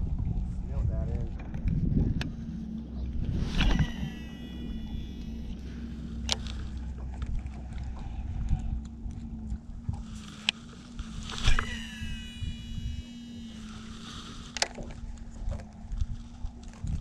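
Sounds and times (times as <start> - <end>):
reel spool whirring whine: 0.0 - 17.0
steady low hum: 0.0 - 17.0
fishing reel spool click: 3.5 - 7.3, 10.2 - 15.8.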